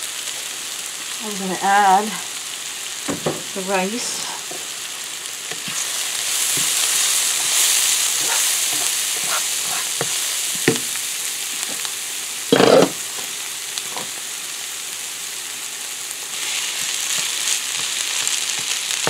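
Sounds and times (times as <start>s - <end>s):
vegetables sizzling in frying pan: 0.0s - 19.0s
spatula scraping and tapping pan: 8.2s - 11.0s, 16.8s - 19.0s.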